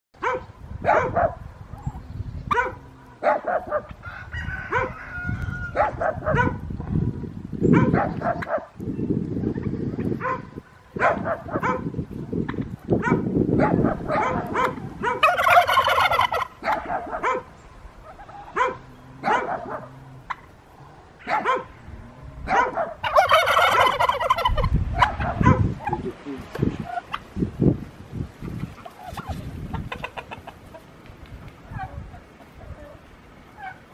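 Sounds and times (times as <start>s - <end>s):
turkeys clucking and yelping: 1.6s - 7.0s, 9.4s - 21.7s, 22.4s - 27.4s, 28.3s - 33.9s
turkey rattling gobbles: 15.2s - 17.1s, 23.0s - 25.2s, 28.5s - 30.8s.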